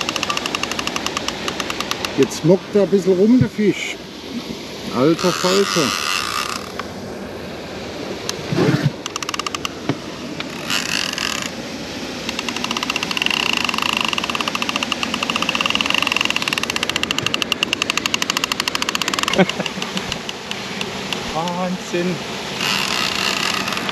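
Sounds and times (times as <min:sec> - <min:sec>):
fishing reel clicking with a whine: 0:00.0 - 0:02.2, 0:05.2 - 0:06.8, 0:09.0 - 0:09.8, 0:10.4 - 0:11.6, 0:12.2 - 0:21.6, 0:22.6 - 0:23.9.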